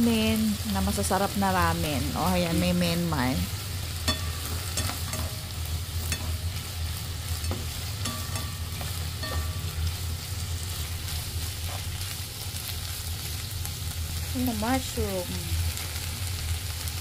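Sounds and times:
low steady hum: 0.0 - 16.8
food sizzling in oil: 0.0 - 17.0
spatula scraping and tapping pan: 4.0 - 6.6, 7.3 - 9.9.

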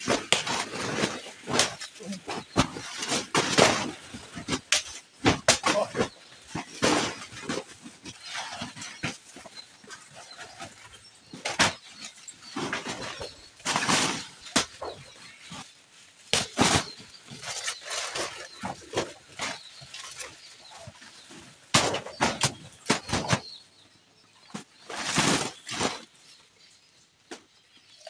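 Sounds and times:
banana plants crashing down: 0.0 - 7.6.

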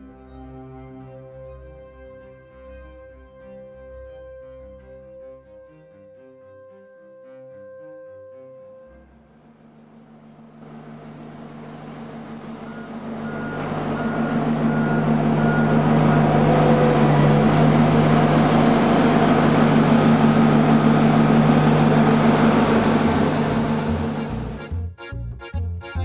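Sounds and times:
vehicle engine humming: 9.3 - 24.7.

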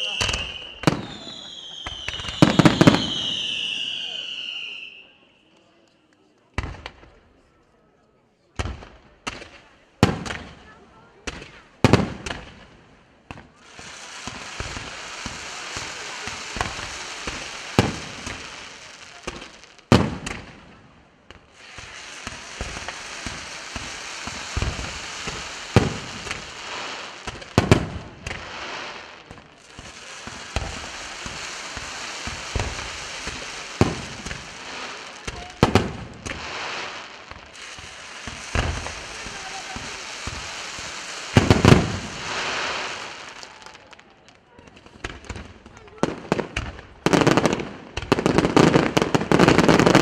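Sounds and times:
fireworks sparks hissing: 0.0 - 5.2, 8.6 - 50.0
firework shells bursting: 13.3 - 43.8.

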